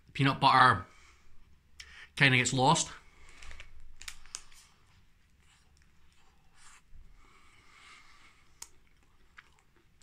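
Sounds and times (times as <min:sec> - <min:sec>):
quiet chewing with crackles: 0:03.2 - 0:10.0.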